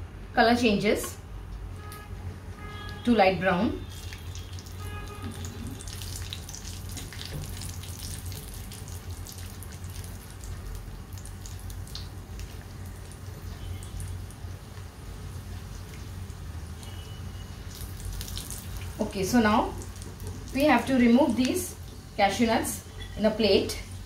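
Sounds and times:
nuts sizzling in hot fat: 3.8s - 22.5s.

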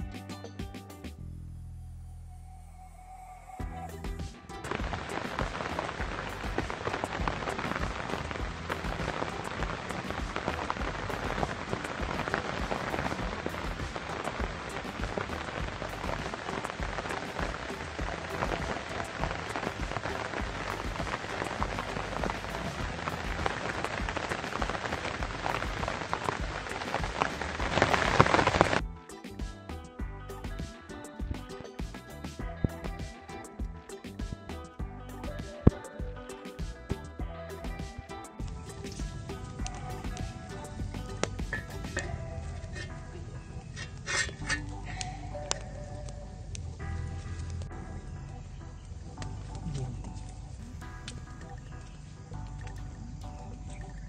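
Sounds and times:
rain pattering on leaves: 4.6s - 28.8s, 38.7s - 42.2s.

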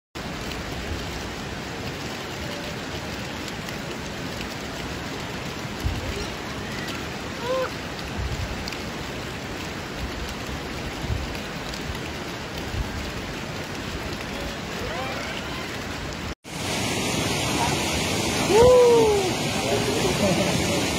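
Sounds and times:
running water hissing: 11.4s - 20.9s.

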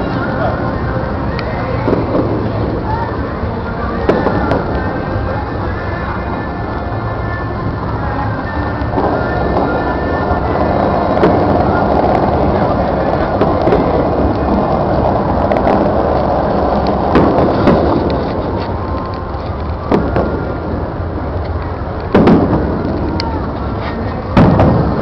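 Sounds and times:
fireworks booming: 0.0s - 8.0s, 8.6s - 25.0s
fountain water jets hissing: 0.0s - 25.0s.

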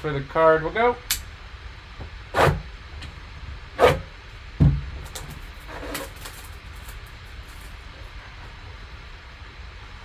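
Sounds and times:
dull thump: 4.6s - 4.9s.

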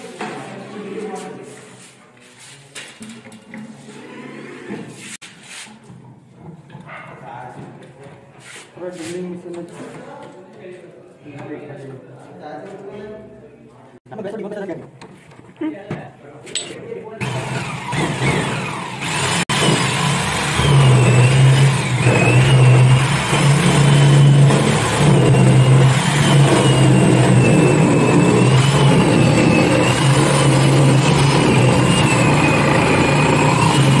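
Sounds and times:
electric drill cutting into wood: 17.2s - 34.0s.

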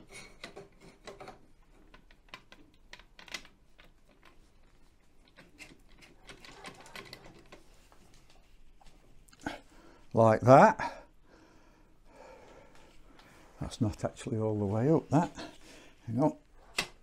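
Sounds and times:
faint clicks and taps of parts: 0.0s - 9.4s.

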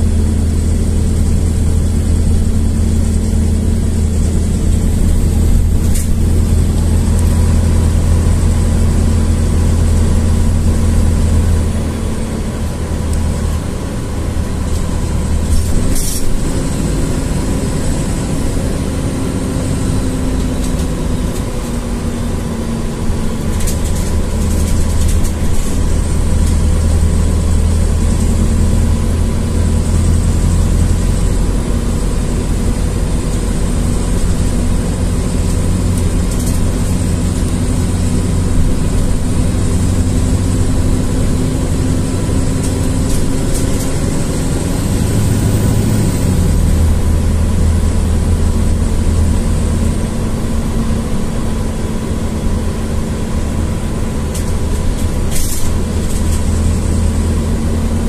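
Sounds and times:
bus engine drone: 0.0s - 58.0s
sharp click or rattle: 5.8s - 6.2s, 54.3s - 56.5s.

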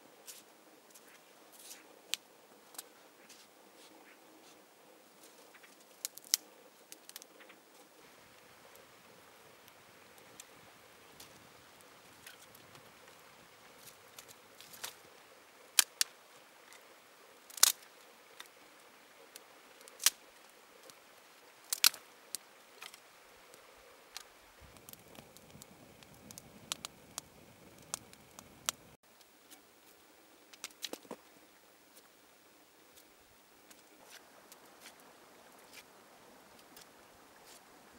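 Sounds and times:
twig fire crackling and popping: 5.2s - 29.0s, 30.5s - 31.2s.

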